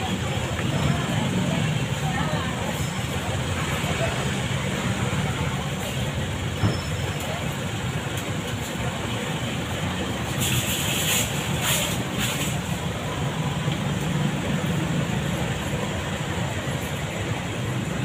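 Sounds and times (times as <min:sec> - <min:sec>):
short hiss: 0:10.3 - 0:12.6.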